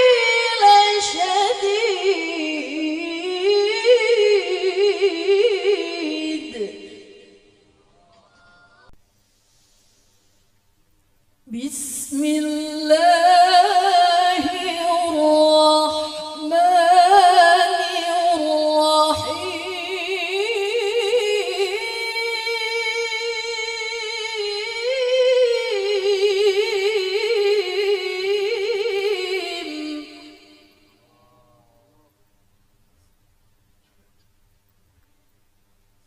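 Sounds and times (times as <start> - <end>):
woman chanting into a microphone: 0.0 - 7.4, 11.5 - 30.7.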